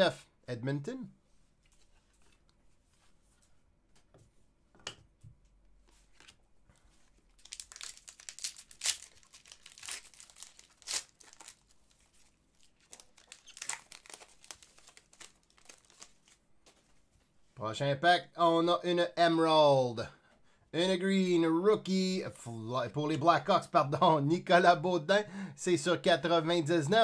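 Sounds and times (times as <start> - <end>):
wrapper crinkling and tearing: 7.3 - 16.4.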